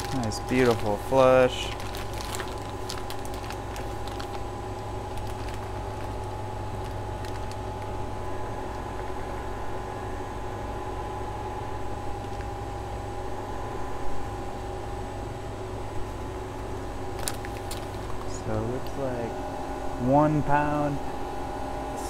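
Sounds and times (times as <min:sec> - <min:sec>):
plastic bag crinkling and clicking: 0:00.0 - 0:08.0, 0:17.2 - 0:19.0
mechanical hum of equipment: 0:00.0 - 0:22.0.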